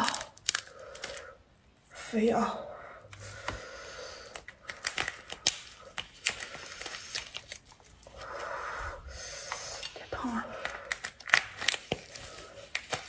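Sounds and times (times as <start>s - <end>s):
lobster shell cracking: 0.0s - 1.2s
shell tearing and scraping: 10.6s - 13.0s.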